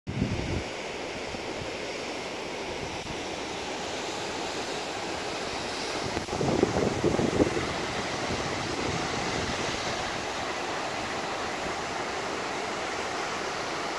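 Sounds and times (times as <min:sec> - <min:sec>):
creek water rushing over rocks: 0:00.7 - 0:13.9
wind buffeting microphone: 0:06.0 - 0:10.4.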